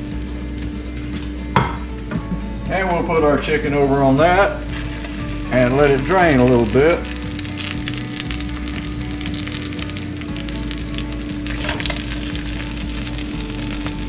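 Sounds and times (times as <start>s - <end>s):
oil sizzling and crackling: 4.3s - 14.0s.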